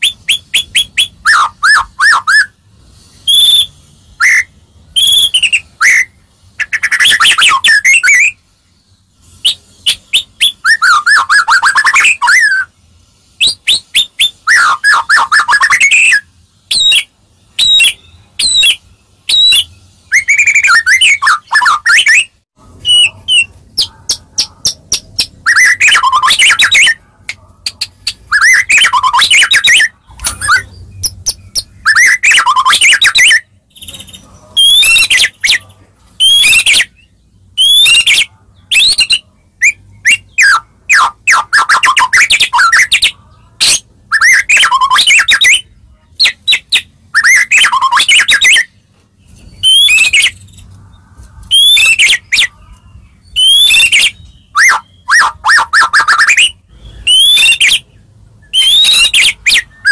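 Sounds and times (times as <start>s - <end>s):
songbird whistling with clicks: 58.5s - 59.9s.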